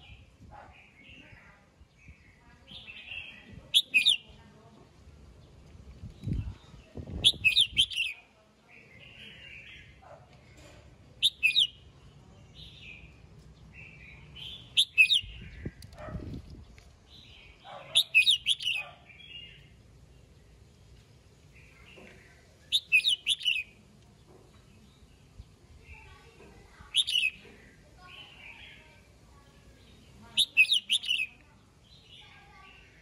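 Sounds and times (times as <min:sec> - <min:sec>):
bird singing whistled notes: 0:02.1 - 0:04.2, 0:07.2 - 0:08.2, 0:11.2 - 0:11.8, 0:13.8 - 0:15.8, 0:17.9 - 0:19.6, 0:22.7 - 0:23.8, 0:30.4 - 0:31.3
bird chattering: 0:02.7 - 0:04.3, 0:07.2 - 0:08.2, 0:11.2 - 0:11.8, 0:14.4 - 0:16.0, 0:17.6 - 0:19.5, 0:22.6 - 0:23.8, 0:26.8 - 0:28.8, 0:30.1 - 0:31.4.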